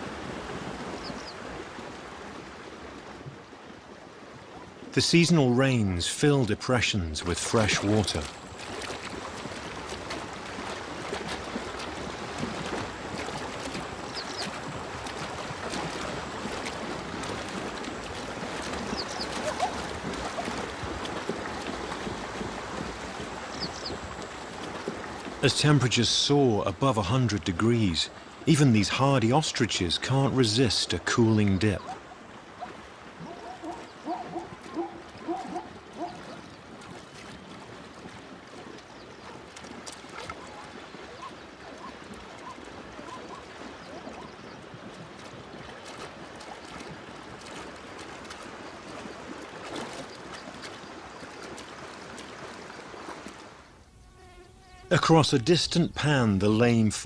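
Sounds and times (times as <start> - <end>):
splashing in shallow water: 0.0 - 57.0.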